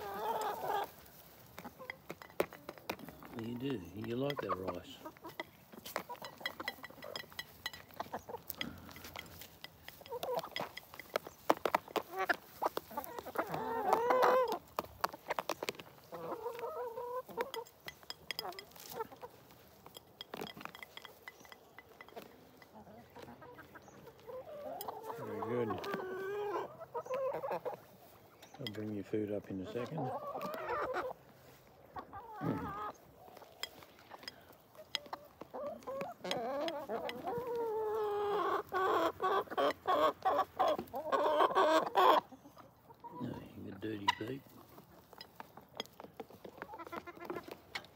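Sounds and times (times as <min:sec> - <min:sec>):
beaks pecking at feed dish: 0:00.0 - 0:31.2, 0:32.0 - 0:42.2, 0:43.0 - 0:47.9
hens clucking: 0:00.0 - 0:47.9.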